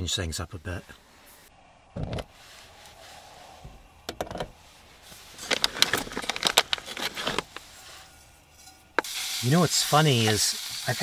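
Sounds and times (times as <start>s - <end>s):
crackling clicks: 5.4s - 7.7s
gas flame hissing: 7.4s - 11.0s.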